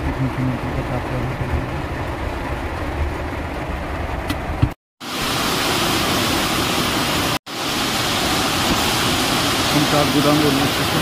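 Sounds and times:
heavy rain pouring: 0.0 - 4.2, 5.0 - 11.0
low car rumble: 0.0 - 4.8.

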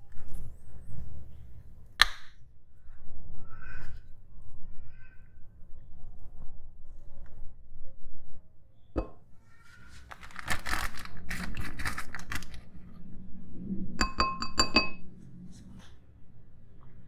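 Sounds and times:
plastic packet crackling: 10.0 - 12.7
spoon tapping ringing glass bowl: 14.0 - 15.0.

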